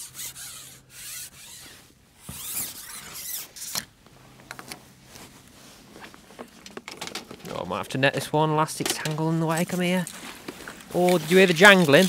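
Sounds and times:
iced fishing pole scraping: 0.0s - 3.9s, 9.5s - 12.0s
quiet rustling: 1.4s - 12.0s.

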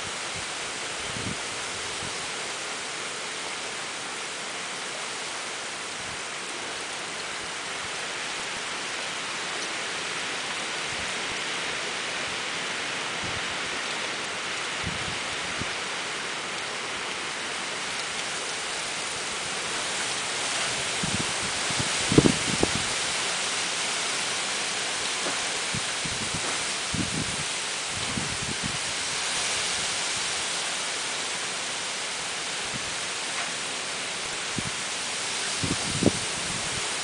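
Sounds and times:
wind gusts thumping on microphone: 0.0s - 2.4s, 13.0s - 13.8s, 14.5s - 15.9s, 18.1s - 30.8s, 32.5s - 33.3s, 33.9s - 37.0s
wind and rain through trees: 0.0s - 37.0s.

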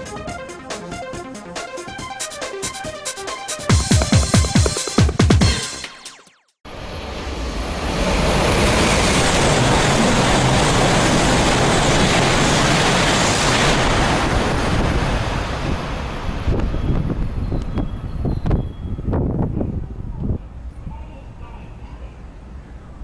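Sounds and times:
high-speed train rushing past: 6.7s - 17.6s.

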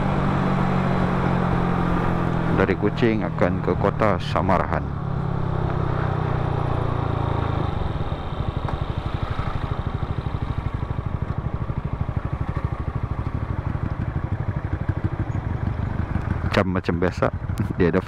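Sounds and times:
scooter engine: 0.0s - 18.0s.

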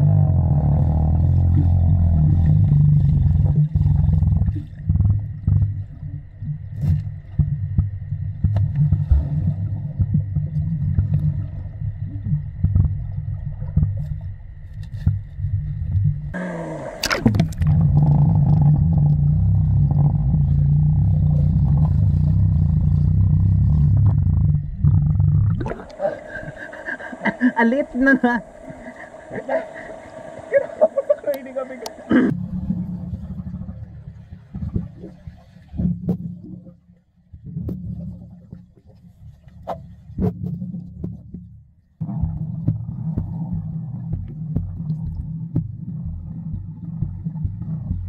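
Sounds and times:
muffled underwater rumble: 0.0s - 48.0s
splashing water: 16.4s - 24.1s, 25.5s - 32.3s
clicks and bubble pops: 24.0s - 26.0s.

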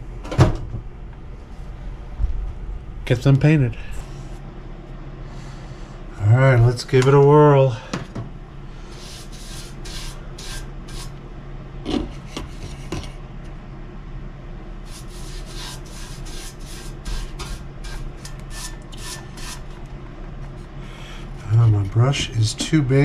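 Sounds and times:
paintbrush swishing on metal: 8.9s - 11.2s, 14.9s - 19.8s.

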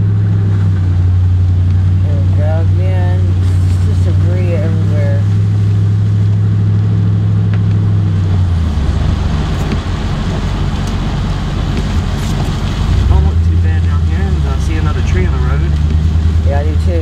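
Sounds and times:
road rumble: 0.0s - 17.0s
vehicle engine hum: 0.0s - 17.0s.

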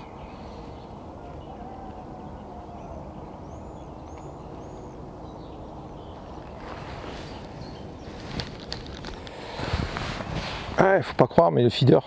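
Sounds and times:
bird chirping: 0.0s - 9.2s
low outdoor background noise: 0.0s - 12.0s.

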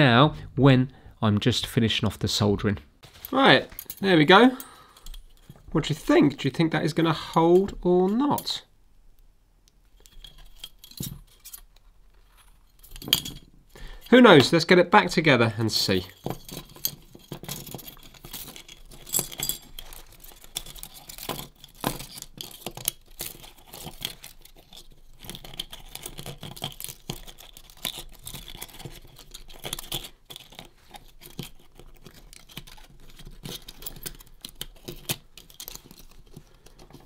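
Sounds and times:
small metal parts clicking: 16.0s - 37.0s.

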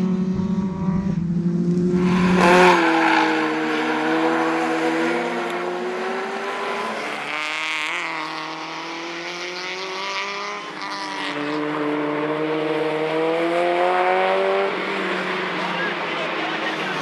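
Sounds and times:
race car engine accelerating: 0.0s - 17.0s.

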